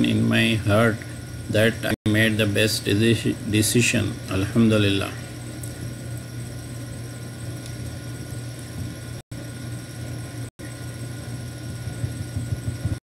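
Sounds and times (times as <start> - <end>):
low hum with hiss: 0.0 - 13.0.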